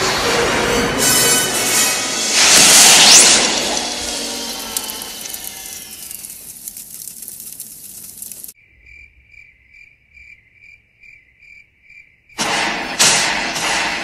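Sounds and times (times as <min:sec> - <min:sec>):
loud rush of noise: 0:00.0 - 0:06.5
crackling hiss of fire: 0:01.7 - 0:08.6
cricket chirping: 0:03.4 - 0:12.4.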